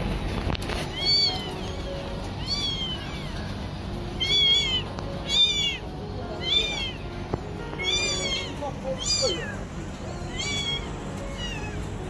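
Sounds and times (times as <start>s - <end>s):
kittens mewing: 2.3s - 7.1s, 7.7s - 12.0s.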